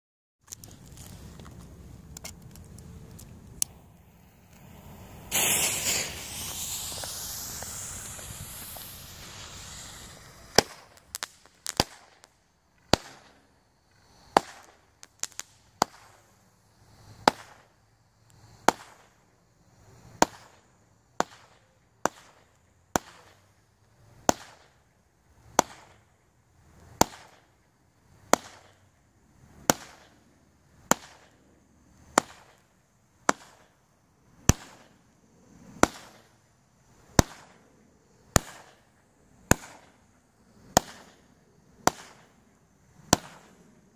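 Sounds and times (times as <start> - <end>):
fireworks hissing and banging: 0.6 - 13.4, 14.0 - 17.7, 18.3 - 19.2, 19.9 - 23.5, 25.4 - 26.0, 26.7 - 27.5, 29.5 - 30.2, 32.1 - 33.8, 34.4 - 35.0, 35.7 - 36.4, 37.0 - 37.6, 38.3 - 42.4, 43.0 - 43.7.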